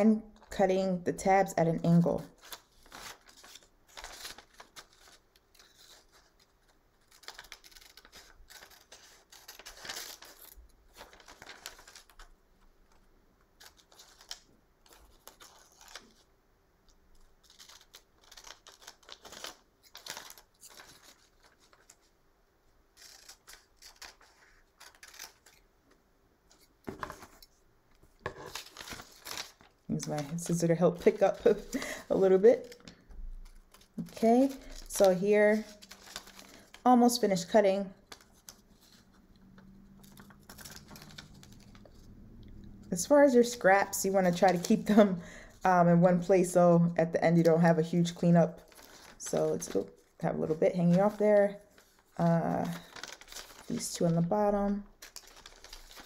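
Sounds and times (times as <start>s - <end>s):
paper handling: 1.9s - 16.3s, 17.2s - 22.1s, 23.0s - 25.6s, 26.5s - 42.1s, 42.9s - 45.0s, 47.4s - 56.0s
scissors snipping paper: 2.4s - 12.2s, 17.4s - 22.0s, 23.0s - 25.6s.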